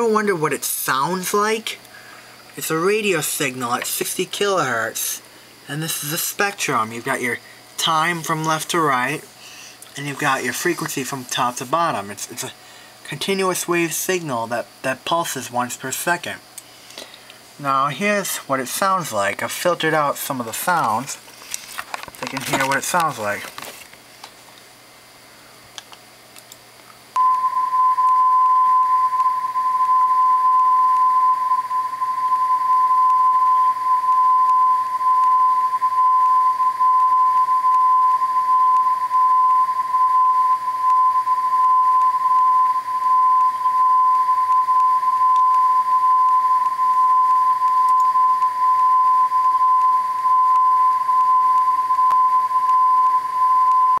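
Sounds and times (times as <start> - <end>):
steady high tone: 27.2 - 54.0.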